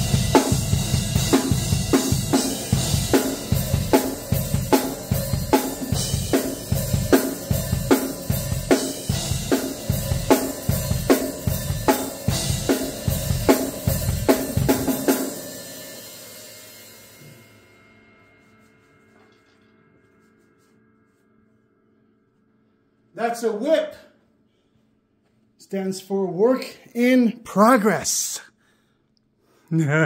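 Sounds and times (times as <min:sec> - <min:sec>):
drum kit playing rock beat: 0:00.0 - 0:17.5.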